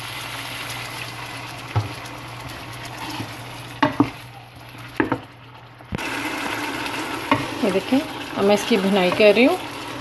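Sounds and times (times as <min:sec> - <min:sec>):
food sizzling in oil: 0:00.0 - 0:10.0
spoon knocking against pot: 0:03.8 - 0:04.2, 0:05.0 - 0:05.2
wooden spoon stirring: 0:07.3 - 0:09.6.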